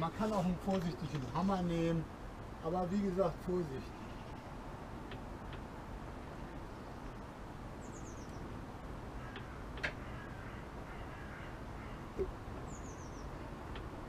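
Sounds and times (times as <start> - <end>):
outdoor background: 0.0 - 14.0
bird chirps: 6.7 - 8.5, 11.0 - 13.4.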